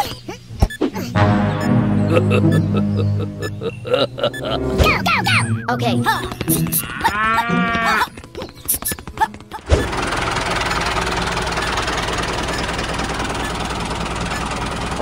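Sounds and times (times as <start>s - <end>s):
small engine running: 8.2s - 15.0s.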